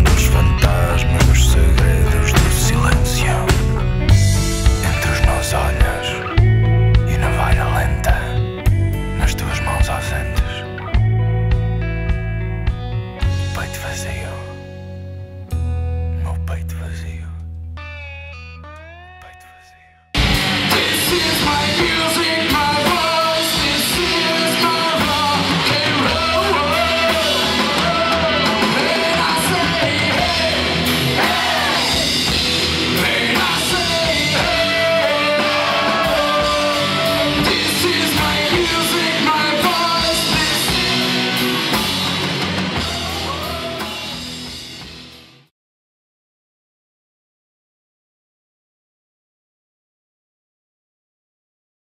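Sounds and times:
person yelling singing: 0:00.0 - 0:03.8, 0:20.6 - 0:41.8, 0:42.7 - 0:44.2
drums: 0:00.0 - 0:14.9, 0:20.2 - 0:45.5
electric guitars: 0:00.0 - 0:16.2, 0:17.5 - 0:45.5.

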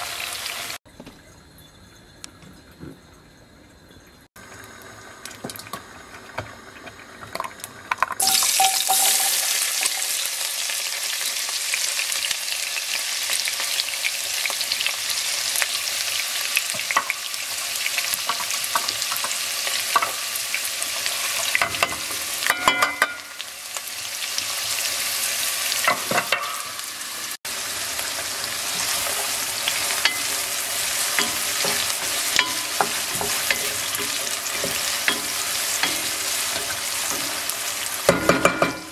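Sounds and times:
onions sizzling in hot oil: 0:00.0 - 0:00.8, 0:04.4 - 0:38.9
wooden spoon scraping pot: 0:31.0 - 0:37.4.

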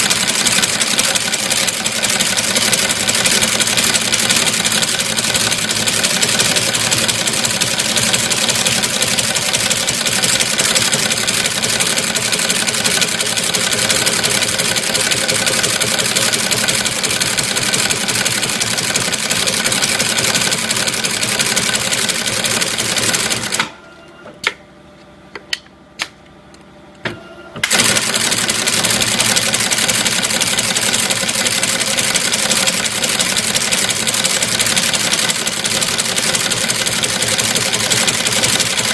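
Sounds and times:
brush tufting machine running: 0:00.0 - 0:23.6, 0:27.6 - 0:38.9
sharp machine clicks: 0:27.6 - 0:38.9.

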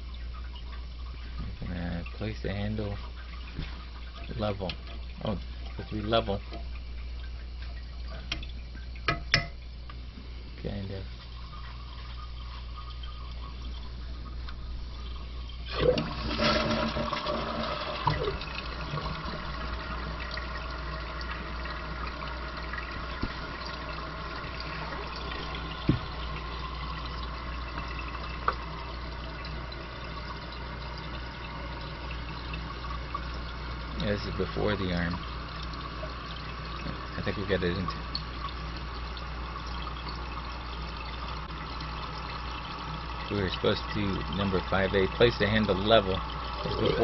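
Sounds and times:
small knocks in pipes: 0:03.5 - 0:06.8, 0:07.5 - 0:10.0, 0:22.7 - 0:23.8, 0:25.5 - 0:26.3, 0:28.4 - 0:28.7, 0:36.0 - 0:37.1
toilet flushing: 0:11.4 - 0:47.0.

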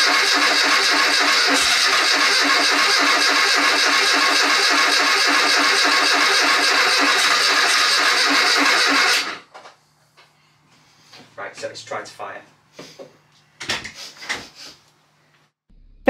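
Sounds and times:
car engine cranking: 0:00.0 - 0:09.4.

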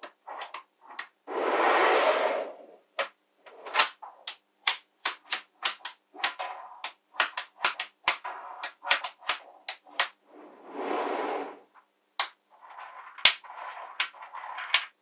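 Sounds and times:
magnetic balls clicking: 0:00.0 - 0:01.2, 0:03.0 - 0:10.2, 0:12.2 - 0:15.0.

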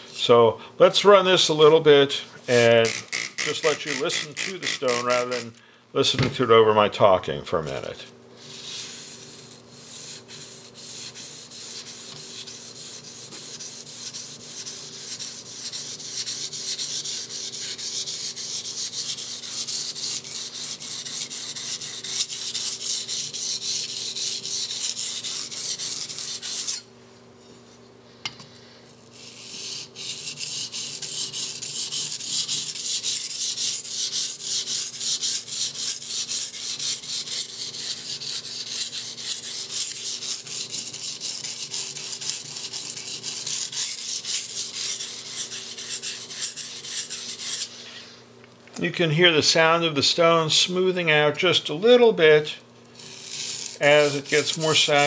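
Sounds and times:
knife scraping on a whetstone: 0:02.5 - 0:05.5, 0:08.4 - 0:26.9, 0:28.9 - 0:48.1, 0:53.0 - 0:55.0.

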